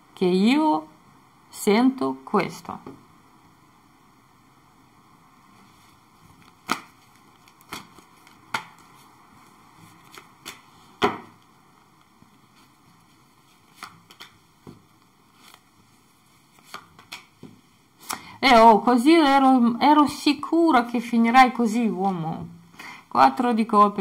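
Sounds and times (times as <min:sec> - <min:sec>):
cards tapping and slapping: 0:06.4 - 0:09.0, 0:10.0 - 0:11.4, 0:13.6 - 0:15.6, 0:16.5 - 0:18.2.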